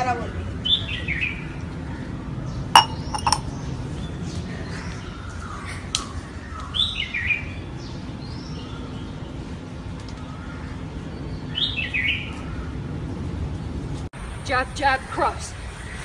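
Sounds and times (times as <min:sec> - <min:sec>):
steel tumbler clinking on floor: 0:02.8 - 0:03.4.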